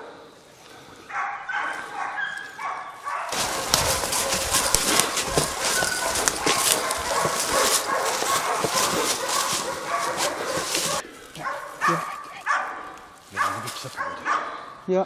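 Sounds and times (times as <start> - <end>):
dogs barking: 1.0 - 14.9
leaves rustling: 2.4 - 14.1
twigs snapping: 3.3 - 11.4.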